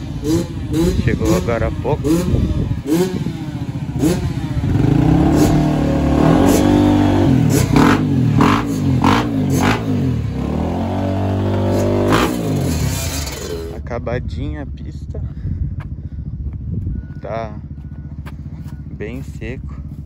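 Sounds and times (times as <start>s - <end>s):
two-stroke motorbike engine revving: 0.0s - 13.9s.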